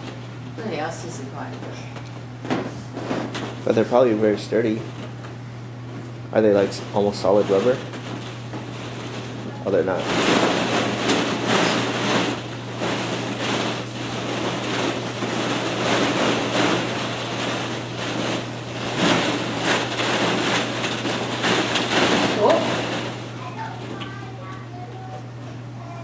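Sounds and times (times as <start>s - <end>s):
steady low hum: 0.0s - 26.0s
plastic balls clattering: 6.4s - 25.0s.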